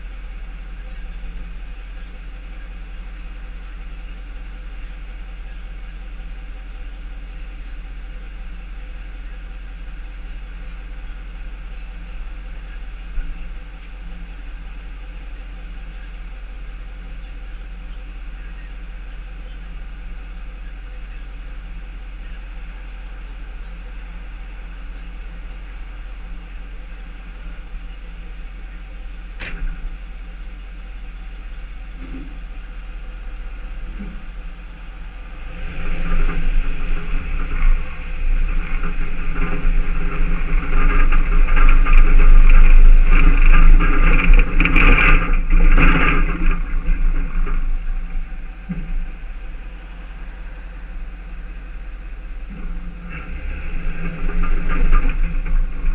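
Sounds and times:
truck engine idling: 0.0s - 55.9s.

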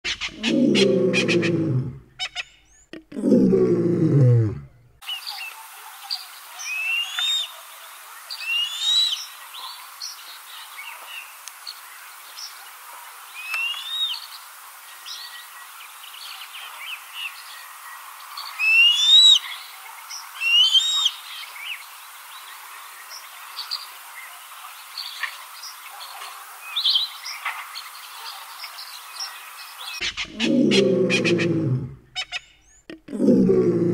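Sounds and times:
birds chirping: 0.1s - 3.6s, 13.4s - 33.9s.

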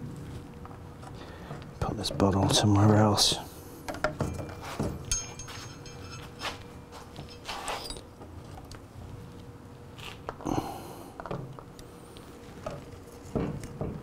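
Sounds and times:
faint knocks and rustles of handling: 3.9s - 8.8s, 11.2s - 14.0s.

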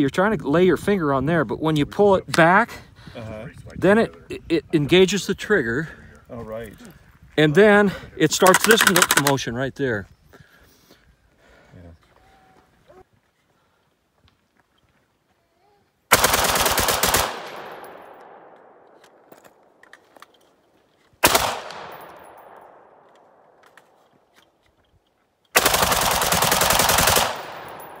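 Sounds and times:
rifle firing rapid bursts: 8.4s - 9.3s, 16.1s - 17.8s, 21.2s - 22.0s, 25.6s - 28.0s
gunshot echo: 21.2s - 23.4s.

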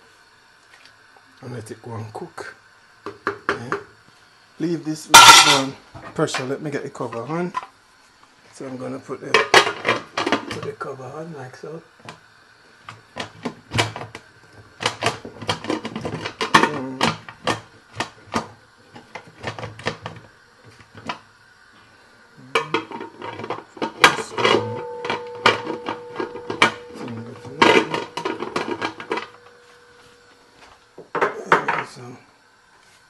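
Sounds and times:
pot lid clattering and clicking: 22.6s - 29.5s
steady tone: 24.0s - 30.6s.

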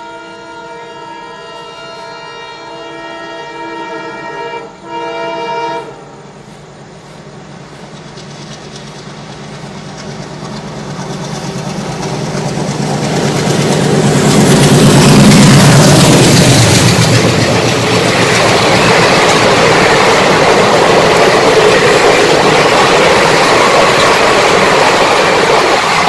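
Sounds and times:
locomotive horn blowing: 0.0s - 6.3s
train engine and wheels: 0.0s - 26.0s.

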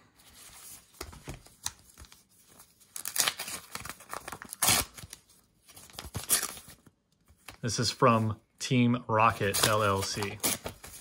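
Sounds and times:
paper rustling: 0.1s - 8.3s, 9.4s - 11.0s
paper envelope ripping: 1.4s - 6.9s, 9.4s - 11.0s.

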